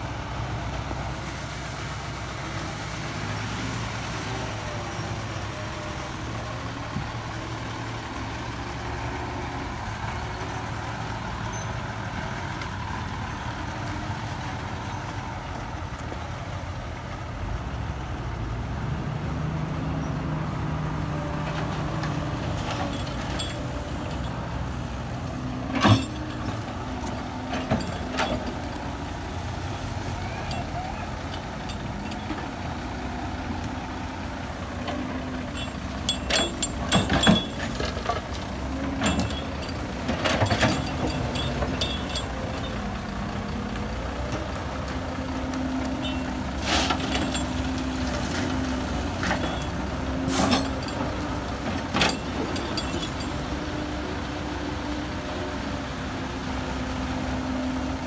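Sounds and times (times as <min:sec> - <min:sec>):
diesel engines running: 0:00.0 - 0:58.0
earth striking steel truck bed: 0:25.5 - 0:28.6, 0:34.9 - 0:42.8.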